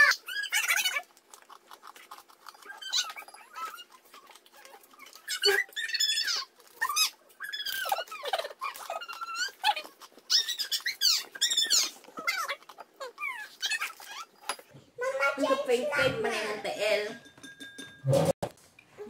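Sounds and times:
crunchy biscuits being chewed: 0.0s - 14.7s.

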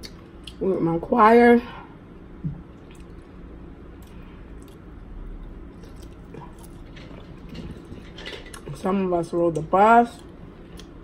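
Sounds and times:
wet chewing: 4.0s - 8.7s.

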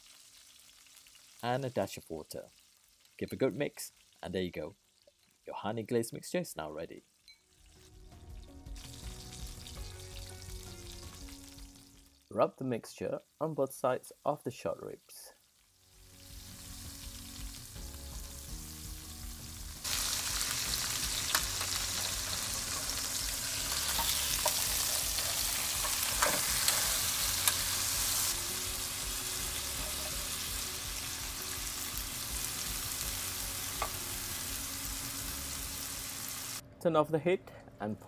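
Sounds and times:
meat sizzling in an oven tin: 0.0s - 4.2s, 7.6s - 12.3s, 13.1s - 36.6s.

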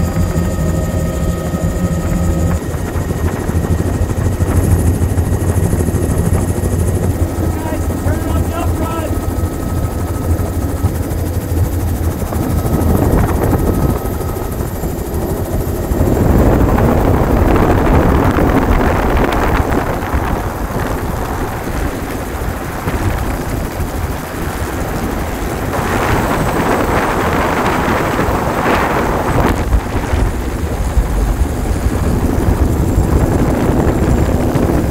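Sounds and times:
helicopter rotor and engine drone: 0.0s - 34.9s
wind rush: 0.0s - 34.9s.

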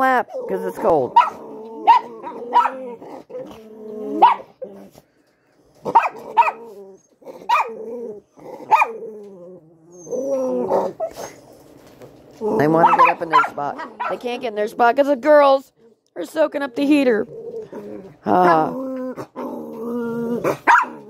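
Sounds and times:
dogs growling: 0.0s - 14.5s, 15.7s - 21.0s
small dogs barking: 0.5s - 4.8s, 5.8s - 9.1s, 12.6s - 14.4s, 18.4s - 19.4s, 20.4s - 21.0s.

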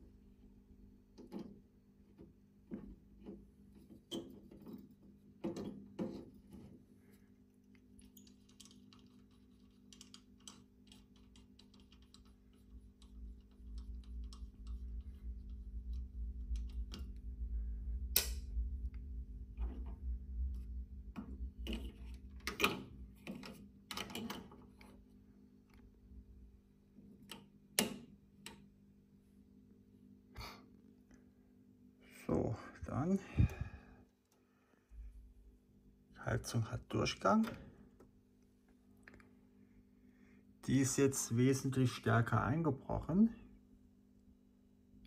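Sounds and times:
steady low hum: 0.0s - 45.0s
low rumble: 15.0s - 21.7s
clicks of plug pins: 18.1s - 18.4s.

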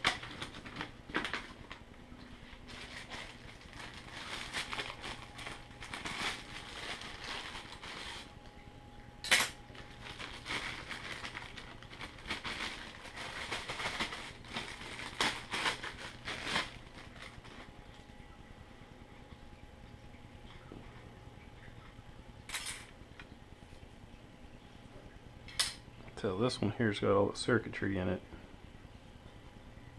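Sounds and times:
plastic bag crinkling: 0.0s - 8.5s, 9.3s - 18.0s.

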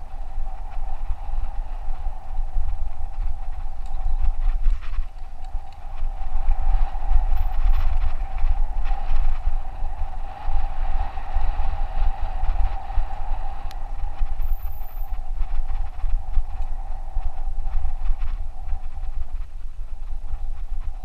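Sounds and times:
bike tyre noise: 0.0s - 21.0s
wind rumbling on microphone: 0.0s - 21.0s
bike clicks and rattles: 1.6s - 9.2s.

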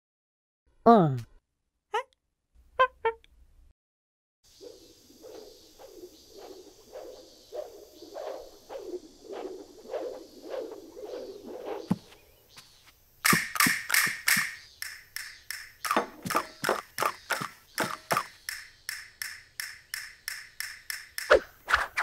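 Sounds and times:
rhythmic sharp taps: 13.2s - 21.3s.

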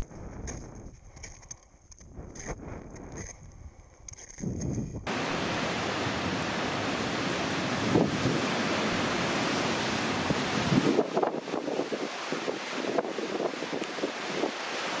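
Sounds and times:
gusts thumping on microphone: 0.0s - 1.1s, 2.0s - 3.8s, 4.4s - 5.7s, 10.2s - 14.6s
strong wind rushing: 4.4s - 15.0s.

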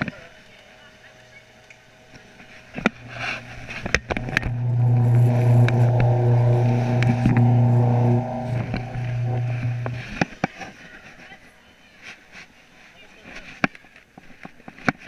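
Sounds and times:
machine humming: 2.7s - 10.2s.

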